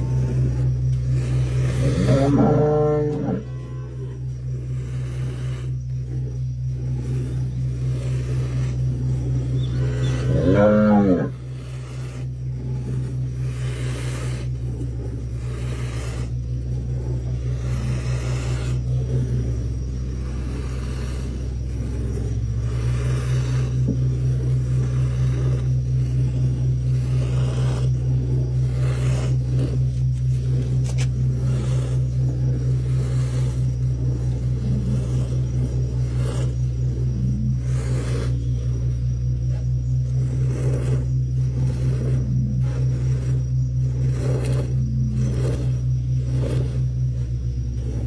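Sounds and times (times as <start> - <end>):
cow mooing: 0.0 - 5.8, 6.8 - 13.7
steady low hum: 0.0 - 48.0.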